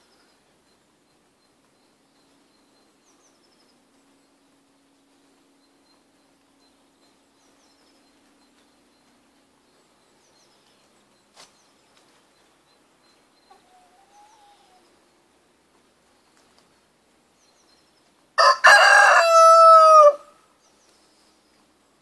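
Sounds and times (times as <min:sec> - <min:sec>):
rooster crowing: 0:18.4 - 0:20.4.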